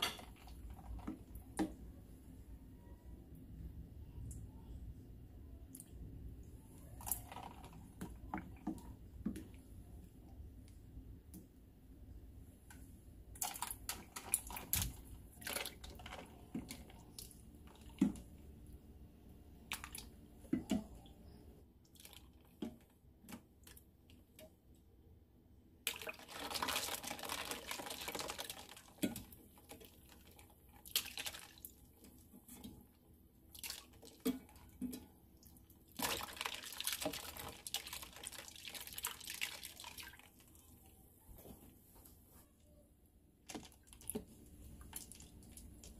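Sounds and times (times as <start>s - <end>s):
water splashing into a tub: 21.9s - 23.8s, 25.8s - 32.9s, 33.5s - 40.6s.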